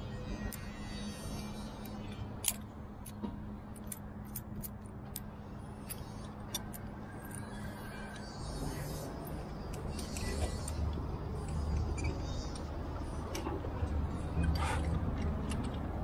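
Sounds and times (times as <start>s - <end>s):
steady low hum: 0.0s - 16.0s
metal carabiner clinking: 1.8s - 7.6s.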